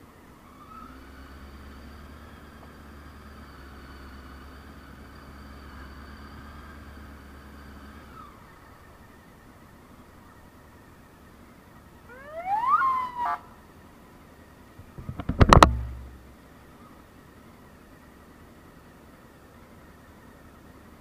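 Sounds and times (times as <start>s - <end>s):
motorcycle engine idling: 8.2s - 12.4s, 13.4s - 21.0s.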